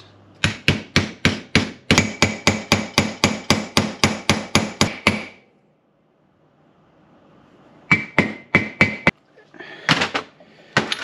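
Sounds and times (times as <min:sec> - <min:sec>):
hammer tapping on metal: 0:00.4 - 0:05.4, 0:07.9 - 0:09.1.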